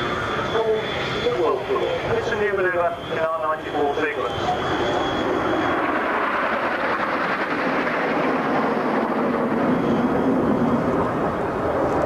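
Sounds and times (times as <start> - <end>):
jets flying past: 0.0 - 12.0.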